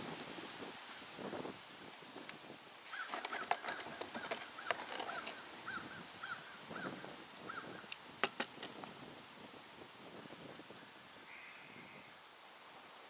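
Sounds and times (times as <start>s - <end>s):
metal clicks and knocks of jack: 3.1s - 5.4s.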